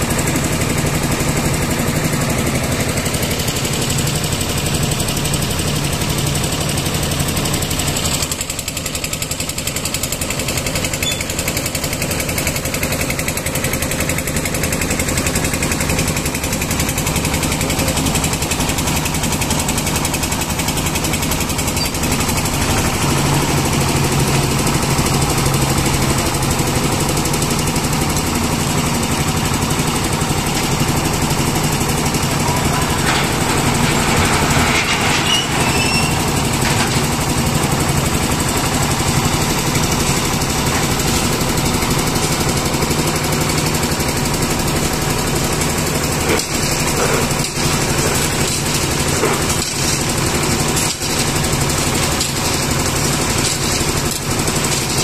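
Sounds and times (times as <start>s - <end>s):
concrete mixer running: 0.0s - 55.0s
hoist machinery: 14.2s - 55.0s.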